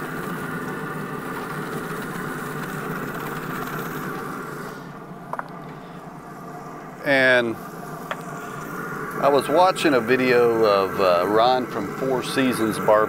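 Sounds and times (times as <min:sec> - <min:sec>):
eggs frying in skillet: 0:00.0 - 0:04.5
pellet grill humming: 0:00.0 - 0:13.0.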